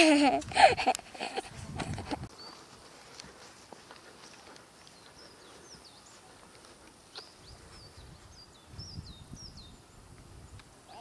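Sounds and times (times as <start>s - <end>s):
small birds chirping and whistling: 2.3s - 2.8s, 4.8s - 6.4s, 7.1s - 11.0s.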